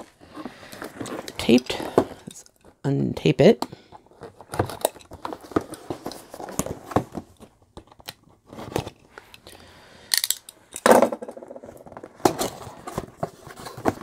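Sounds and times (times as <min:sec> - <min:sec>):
cardboard box crinkling and rustling: 0:04.1 - 0:07.6, 0:11.6 - 0:14.0.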